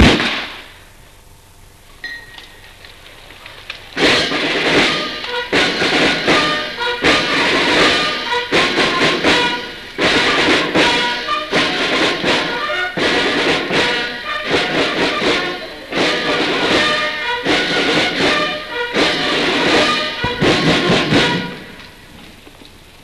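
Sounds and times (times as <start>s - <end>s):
brass band playing: 4.0s - 22.3s.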